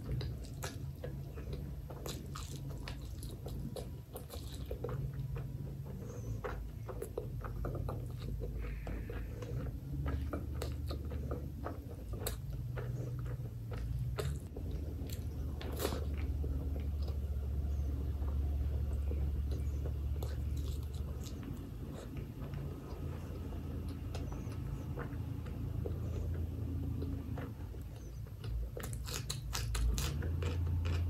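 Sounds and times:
low hum: 0:00.0 - 0:31.0
wet chewing: 0:00.0 - 0:31.0.

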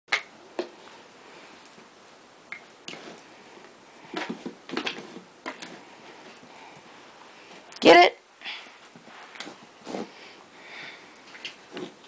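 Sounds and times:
dog playing with objects on carpet: 0:04.1 - 0:06.5.

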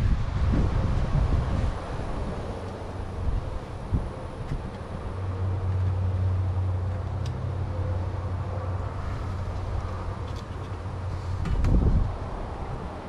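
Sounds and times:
motor vehicle humming: 0:00.0 - 0:13.0.

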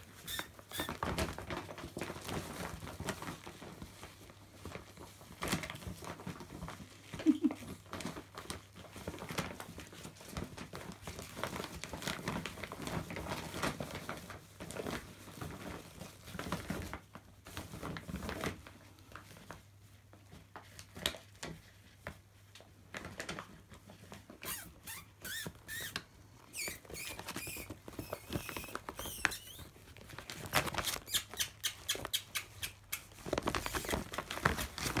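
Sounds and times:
puppies scrabbling in plastic bag: 0:00.0 - 0:35.0
puppy squeaks: 0:00.2 - 0:01.0, 0:24.4 - 0:29.7, 0:30.7 - 0:34.0.

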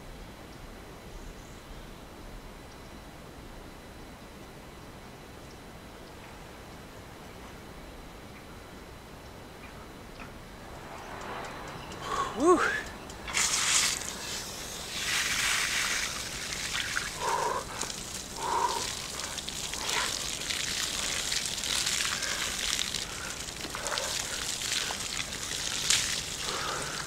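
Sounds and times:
man's short vocal sounds: 0:12.1 - 0:12.9
hose water splashing: 0:12.4 - 0:27.0.

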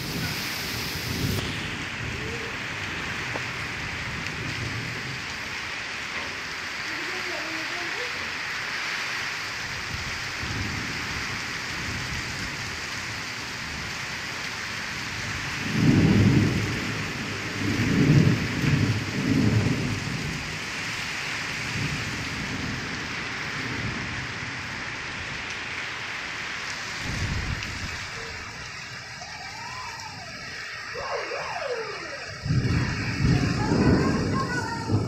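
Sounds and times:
thunder rumbling: 0:00.0 - 0:07.3, 0:15.0 - 0:35.0
heavy rain pouring: 0:00.0 - 0:35.0.

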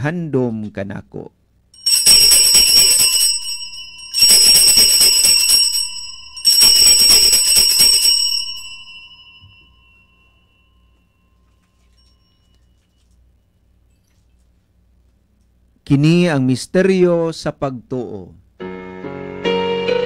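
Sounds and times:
small bells ringing: 0:01.8 - 0:13.2.

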